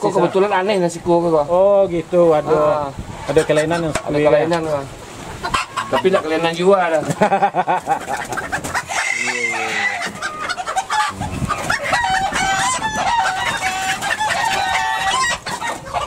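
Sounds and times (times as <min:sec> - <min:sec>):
chickens clucking and squawking: 0:00.0 - 0:16.0.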